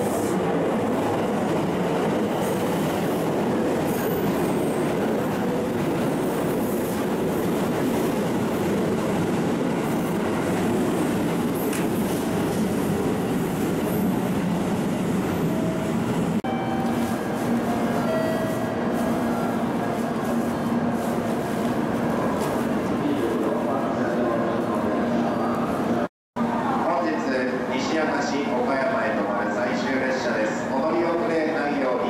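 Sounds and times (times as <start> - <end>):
train wheel-on-rail noise: 0.0 - 32.0.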